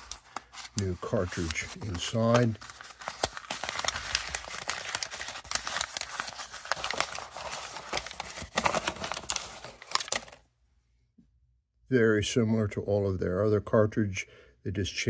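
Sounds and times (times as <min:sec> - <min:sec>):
paper packaging crinkling: 0:00.0 - 0:10.4.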